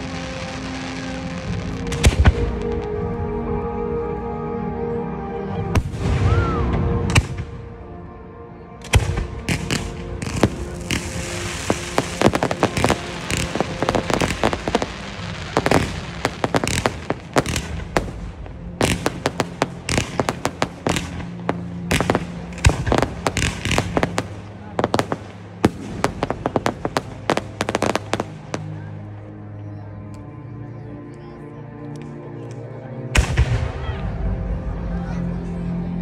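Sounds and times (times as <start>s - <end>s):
firework crackling pops: 1.6s - 2.7s, 8.9s - 28.7s.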